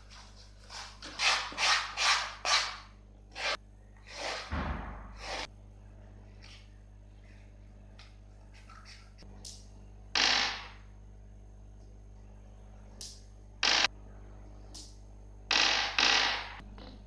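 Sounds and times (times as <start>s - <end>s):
low thud: 4.5s - 5.2s.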